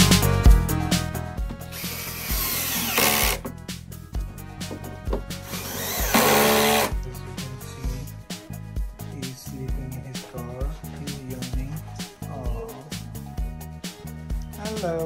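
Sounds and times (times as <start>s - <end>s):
background music: 0.0s - 15.0s
cordless drill driving screws: 1.7s - 3.5s, 5.4s - 6.9s.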